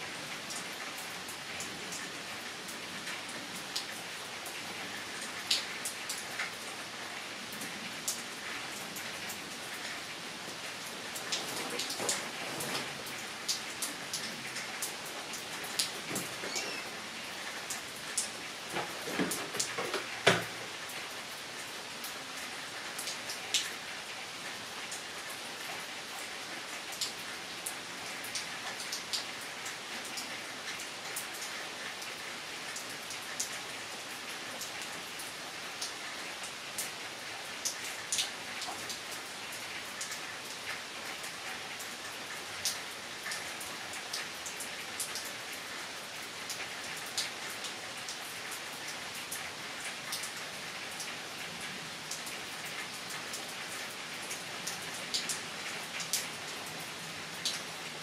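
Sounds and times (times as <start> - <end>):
steady rain hiss: 0.0 - 58.0
raindrops tapping close by: 0.1 - 33.7.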